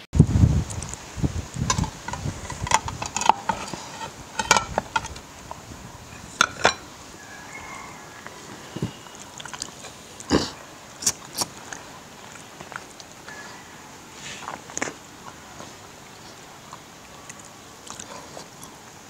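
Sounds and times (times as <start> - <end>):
plates and glassware knocking: 1.7 - 5.2, 6.3 - 6.9
wet chewing and lip-smacking: 9.1 - 10.3, 11.0 - 13.2, 16.7 - 18.8.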